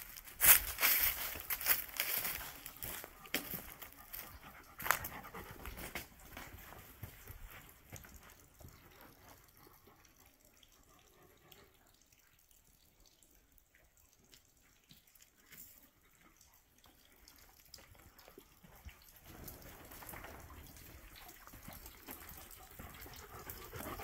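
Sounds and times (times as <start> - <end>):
water drips from rock: 5.9 - 24.0.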